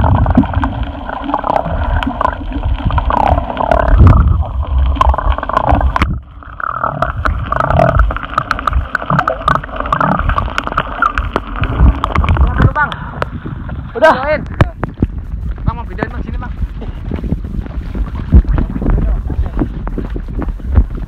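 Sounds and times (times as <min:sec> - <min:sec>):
underwater gurgling and bubbling: 0:00.0 - 0:21.0
water knocking against camera: 0:14.4 - 0:21.0.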